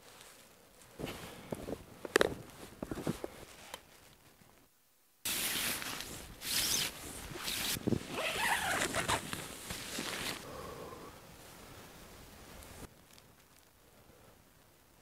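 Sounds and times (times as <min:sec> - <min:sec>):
tent fabric rustling and swishing: 0:00.0 - 0:04.4, 0:05.2 - 0:10.4
footsteps crunching in snow: 0:05.3 - 0:10.4.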